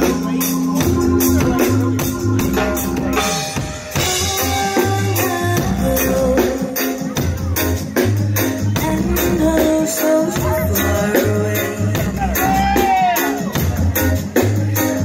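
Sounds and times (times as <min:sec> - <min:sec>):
deep bass line: 0:00.0 - 0:15.0
drum kit beat: 0:00.0 - 0:15.0
reggae band playing: 0:00.0 - 0:15.0.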